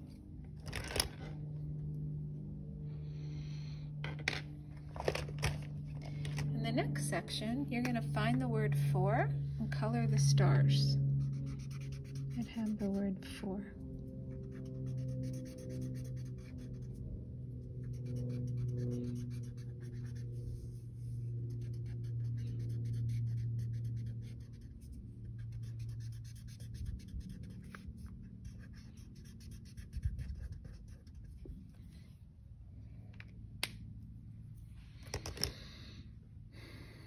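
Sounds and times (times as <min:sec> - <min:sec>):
low steady hum: 0:00.0 - 0:37.0
marker scratching on paper: 0:11.2 - 0:13.4, 0:14.3 - 0:31.8.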